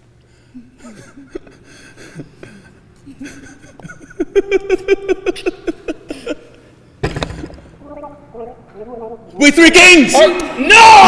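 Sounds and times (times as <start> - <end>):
people laughing: 0.6 - 6.8.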